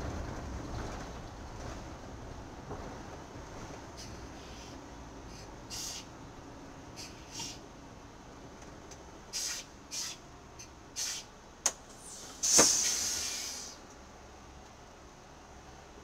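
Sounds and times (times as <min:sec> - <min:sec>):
short air hisses: 0:04.0 - 0:06.1, 0:07.0 - 0:07.6, 0:09.3 - 0:10.2, 0:11.0 - 0:11.3, 0:11.9 - 0:13.8
loud burst of compressed air: 0:05.7 - 0:06.1, 0:07.0 - 0:07.6, 0:09.3 - 0:10.2, 0:11.0 - 0:11.3, 0:11.9 - 0:13.8
pneumatic click: 0:09.4 - 0:10.2, 0:11.0 - 0:13.8.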